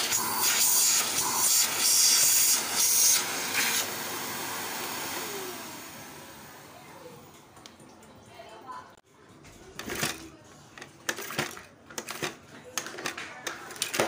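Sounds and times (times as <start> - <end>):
motor winding down whine: 0.0 - 6.6
vacuum cleaner running: 0.0 - 7.2.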